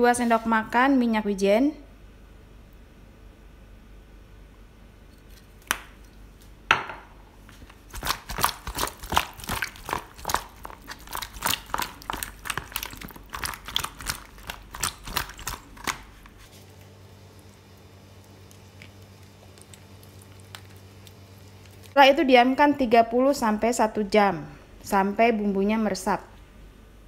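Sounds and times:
wet squelches of chicken in marinade: 0:07.8 - 0:22.0.

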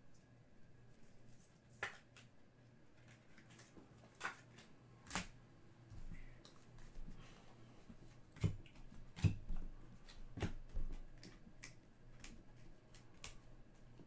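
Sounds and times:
cards flipping with light snaps: 0:01.3 - 0:02.3, 0:03.0 - 0:05.4, 0:10.0 - 0:14.0.

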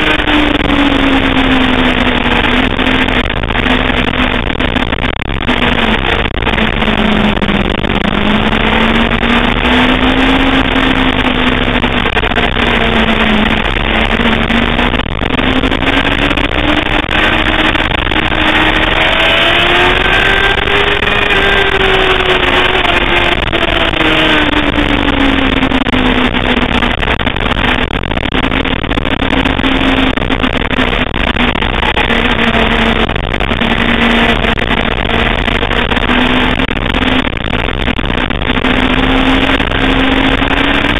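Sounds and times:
motorcycle engine at speed: 0:00.0 - 0:40.9
steady rush of noise: 0:00.0 - 0:40.9.

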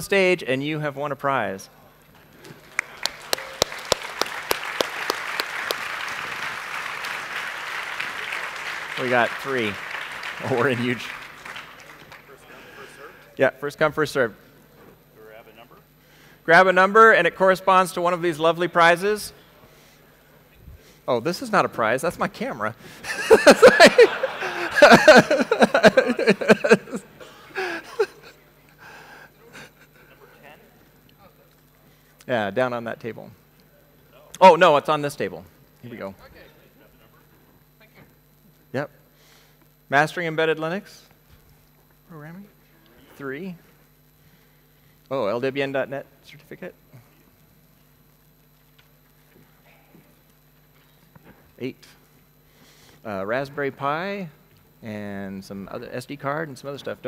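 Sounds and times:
audience applauding: 0:02.4 - 0:12.8, 0:23.1 - 0:27.0
men talking: 0:08.9 - 0:09.8, 0:10.4 - 0:11.2, 0:12.0 - 0:14.4, 0:21.1 - 0:28.6
men laughing: 0:12.4 - 0:13.3, 0:23.0 - 0:28.4.

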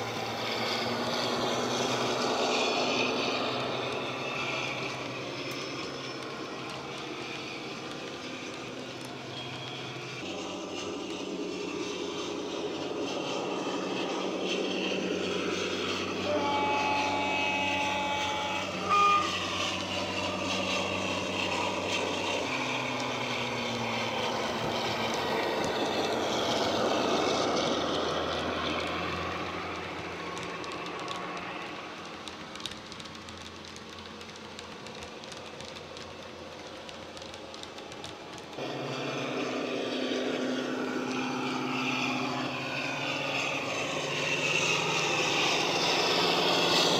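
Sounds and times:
train horn: 0:15.9 - 0:22.6
model diesel engine sound: 0:38.5 - 0:46.9.

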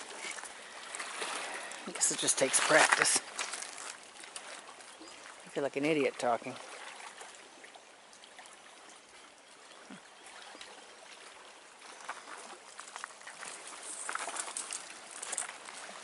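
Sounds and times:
rush of water: 0:00.0 - 0:16.0
footsteps crunching on stones: 0:12.1 - 0:16.0.

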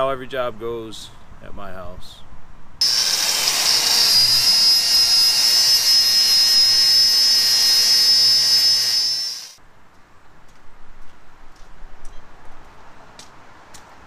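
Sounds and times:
angle grinder grinding steel: 0:02.8 - 0:09.6.

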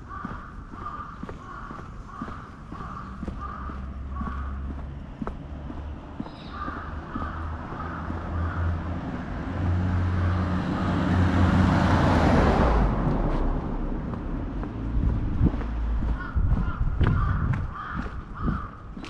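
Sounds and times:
crows cawing: 0:00.0 - 0:11.1, 0:15.5 - 0:19.0
low street hum: 0:00.0 - 0:19.0
car passing: 0:02.0 - 0:18.6.

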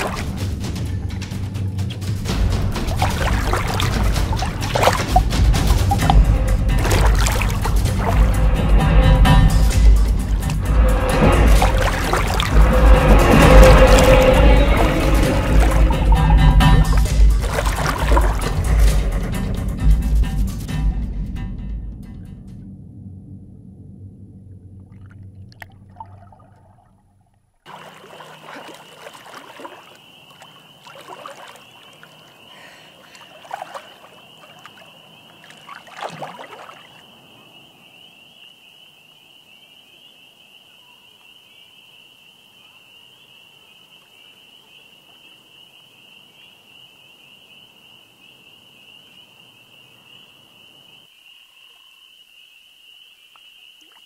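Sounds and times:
water splashing and sloshing: 0:00.0 - 0:19.9, 0:24.8 - 0:38.2, 0:53.8 - 0:54.0
background music: 0:00.0 - 0:23.5.

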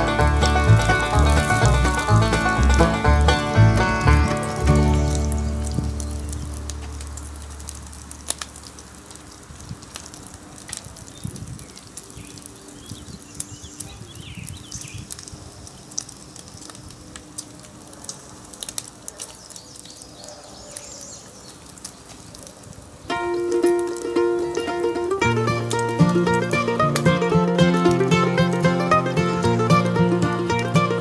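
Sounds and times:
plucked mandolin music: 0:00.0 - 0:07.9, 0:23.1 - 0:31.0
bacon sizzling and popping: 0:00.0 - 0:31.0.

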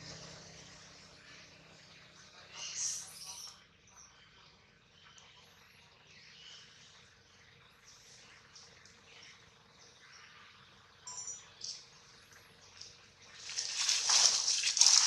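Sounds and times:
outdoor background hiss: 0:00.0 - 0:15.0
high-pitched chirps and squeaks: 0:02.6 - 0:03.6.

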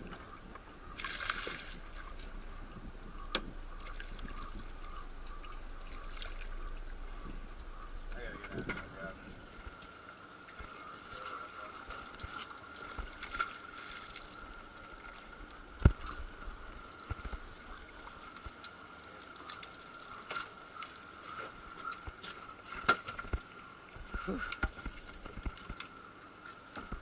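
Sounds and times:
faint high-pitched hum: 0:00.0 - 0:27.0.

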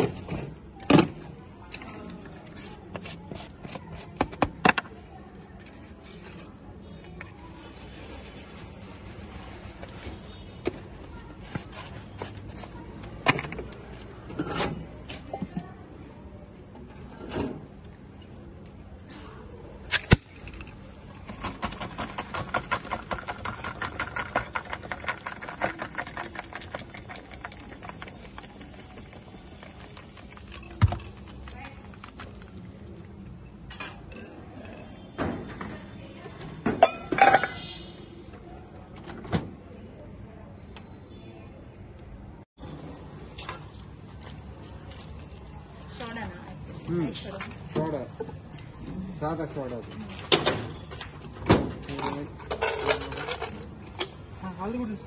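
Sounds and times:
steel spoon in plastic tumbler: 0:20.6 - 0:32.6
glass bottles clinking together: 0:36.8 - 0:37.7.

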